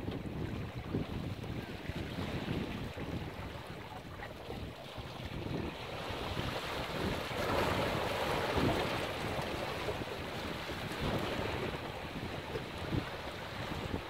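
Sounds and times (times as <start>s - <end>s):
wind rumbling on microphone: 0.0s - 14.0s
waves breaking among stones: 6.4s - 11.6s.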